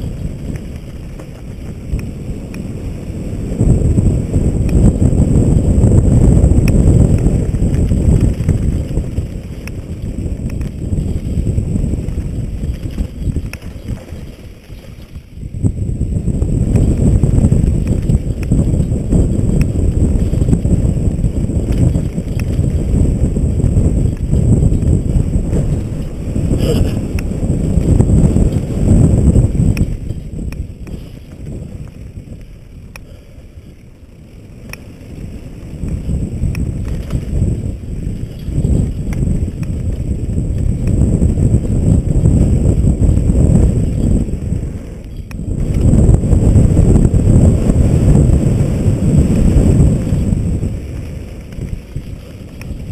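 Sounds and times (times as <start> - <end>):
bike clicks and rattles: 0.0 - 52.9
mountain bike rolling on dirt: 0.0 - 52.9
wind buffeting microphone: 0.0 - 52.9.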